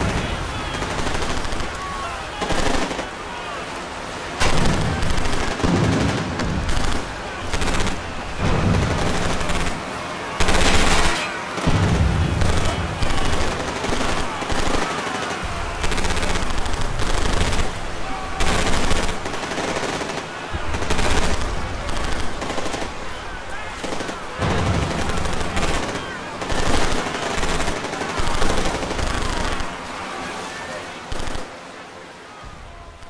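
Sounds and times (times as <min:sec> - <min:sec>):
automatic gunfire bursts: 0:10.4 - 0:11.8, 0:23.8 - 0:29.8.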